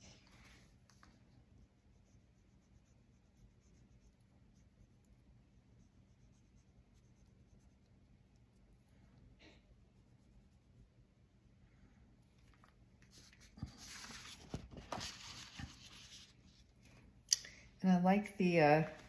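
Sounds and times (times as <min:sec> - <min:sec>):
faint low hum: 0:00.0 - 0:19.0
paintbrush dabbing on paper: 0:00.4 - 0:09.2, 0:09.8 - 0:11.0, 0:12.7 - 0:16.8.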